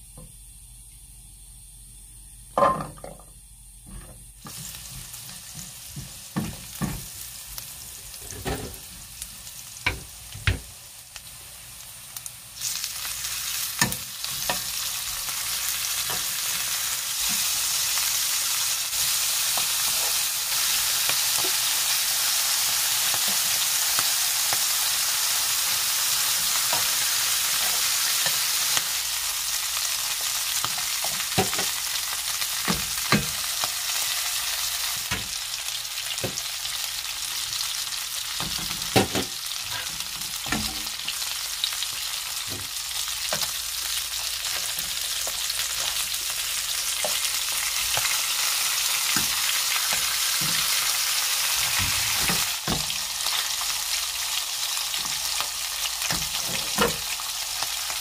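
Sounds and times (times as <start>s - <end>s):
food sizzling in butter: 4.4s - 58.0s
utensils tapping a pan: 30.7s - 31.8s.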